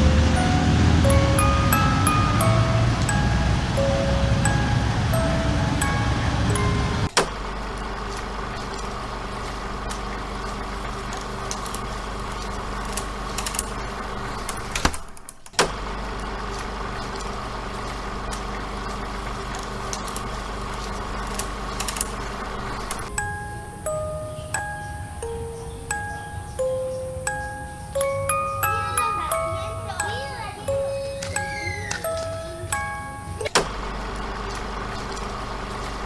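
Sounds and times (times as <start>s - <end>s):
chime music: 0.0s - 7.2s, 23.1s - 33.6s
low machine hum: 0.0s - 14.8s, 15.6s - 36.0s
clicks: 9.8s - 18.6s, 30.8s - 36.0s.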